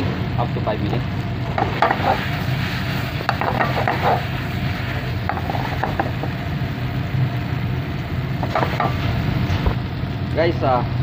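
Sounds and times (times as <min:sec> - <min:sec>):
steady low hum: 0:00.0 - 0:11.0
spatula scraping metal pan: 0:03.3 - 0:04.3.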